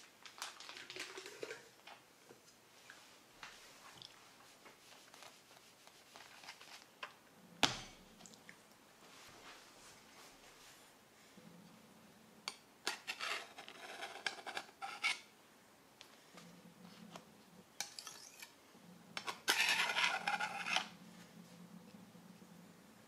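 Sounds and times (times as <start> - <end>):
metal spatula scraping metal rings: 17.8 - 18.6, 19.5 - 20.9.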